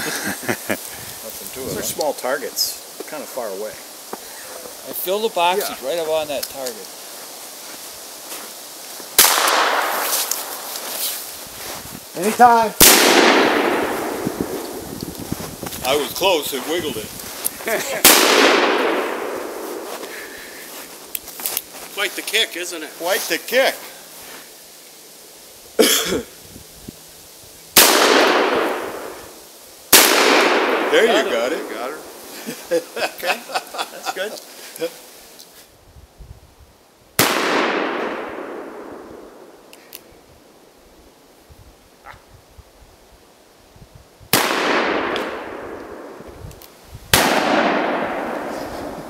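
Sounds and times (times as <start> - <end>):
gunshots with echo: 9.2 - 10.2, 12.8 - 14.6, 18.0 - 19.9, 27.8 - 29.2, 29.9 - 31.9, 47.1 - 49.0.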